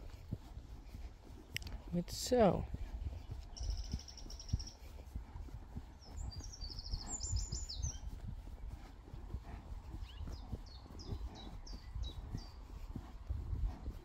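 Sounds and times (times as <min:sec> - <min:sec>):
horse hooves walking on grass: 0:00.0 - 0:14.0
songbirds singing: 0:02.8 - 0:13.0.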